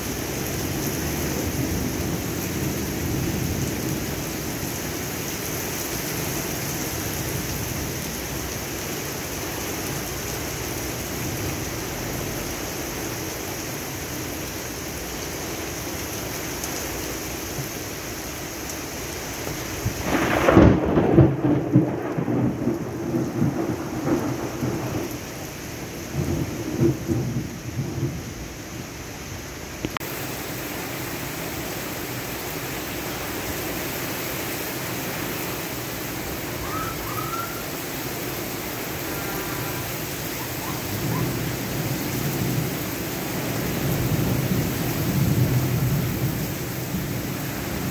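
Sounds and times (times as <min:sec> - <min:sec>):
heavy rain on pavement and cars: 0:00.0 - 0:47.9
thunder clap and rumble: 0:19.8 - 0:28.4, 0:40.6 - 0:47.9.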